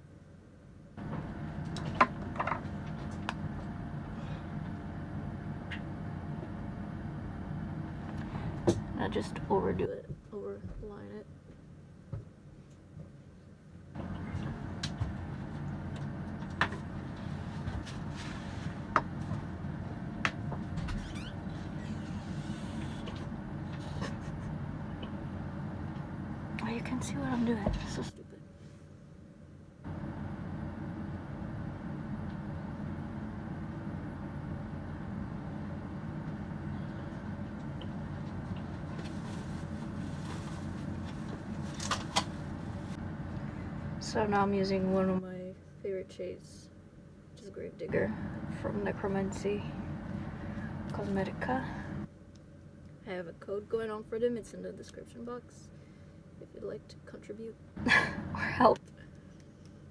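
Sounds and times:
low rumble inside bus: 0:01.0 - 0:09.6, 0:14.0 - 0:28.0, 0:29.8 - 0:45.2.

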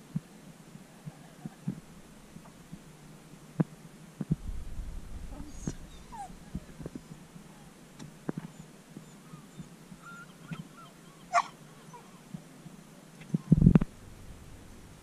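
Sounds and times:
dog whining: 0:05.4 - 0:07.8, 0:08.5 - 0:12.3
dog yelp: 0:05.5 - 0:06.9, 0:08.5 - 0:12.3.

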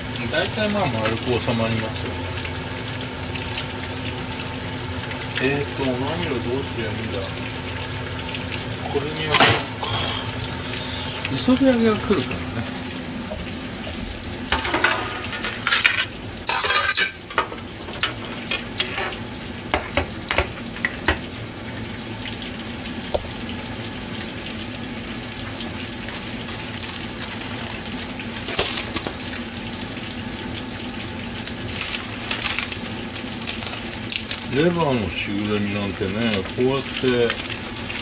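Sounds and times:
faint sizzle of frying: 0:00.0 - 0:38.0
steady low hum: 0:00.0 - 0:38.0
metal kitchenware clattering: 0:09.3 - 0:09.7, 0:14.5 - 0:19.2.

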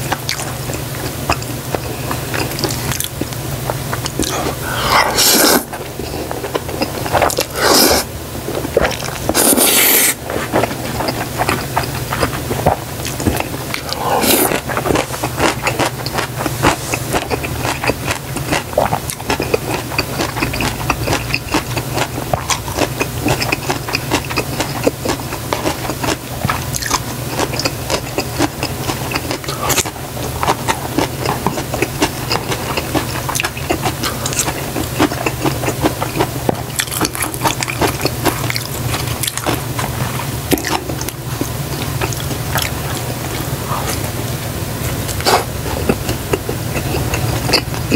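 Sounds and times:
low steady hum: 0:00.0 - 0:47.9
wet chewing and lip smacking: 0:00.1 - 0:44.1, 0:45.0 - 0:47.9
noodle slurps: 0:04.2 - 0:08.1, 0:08.8 - 0:15.8.

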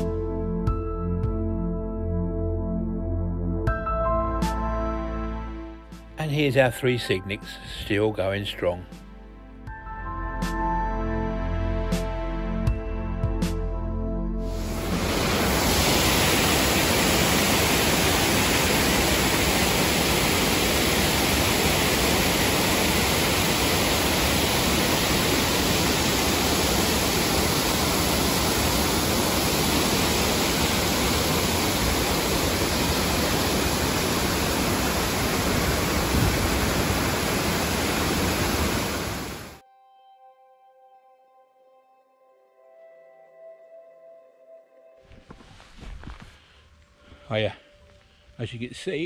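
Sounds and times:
heavy rain hissing: 0:14.5 - 0:39.6.

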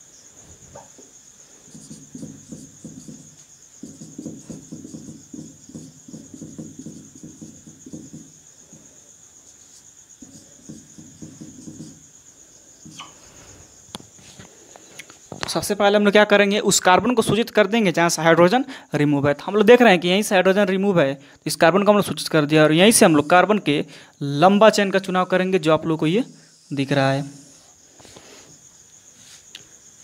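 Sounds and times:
marker scratching on whiteboard: 0:01.6 - 0:12.1, 0:26.1 - 0:27.7.

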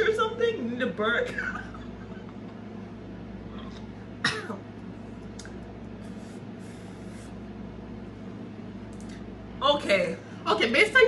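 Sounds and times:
woman coughing: 0:04.2 - 0:04.7.

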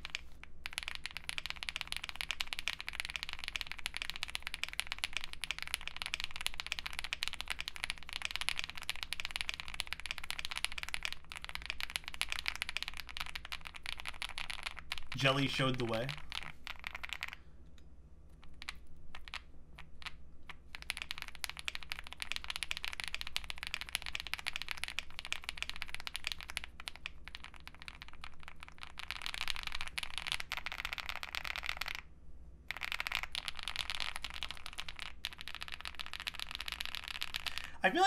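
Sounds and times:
mechanical keyboard typing: 0:00.0 - 0:17.4, 0:20.8 - 0:32.0.

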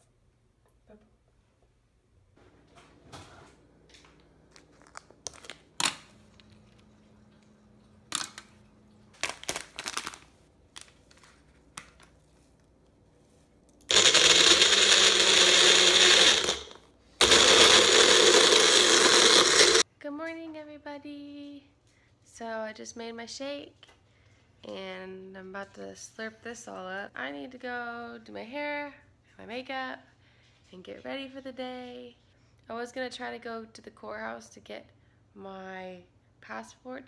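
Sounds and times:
blender running: 0:13.9 - 0:19.8.

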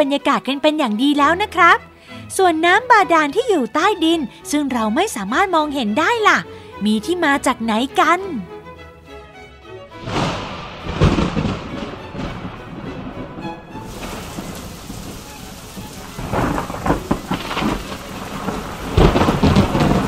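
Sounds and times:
steady rain: 0:10.0 - 0:20.0
thunder cracks and rumbles: 0:10.0 - 0:20.0.

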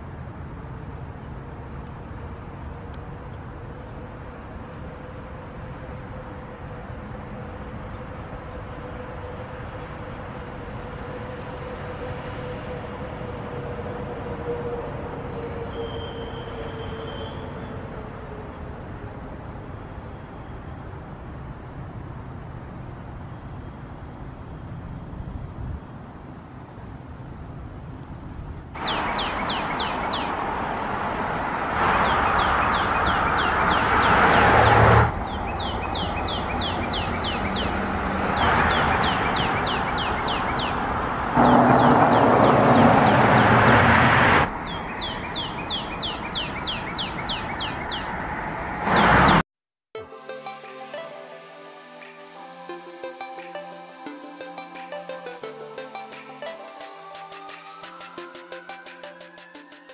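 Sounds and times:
steady background noise: 0:00.0 - 0:49.4
bird singing downslurred whistles: 0:15.3 - 0:17.7
rushing noise: 0:28.8 - 0:49.4.

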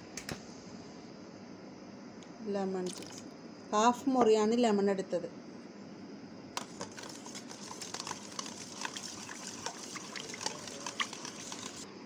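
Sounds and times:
liquid sloshing: 0:02.8 - 0:03.3, 0:06.6 - 0:11.8.

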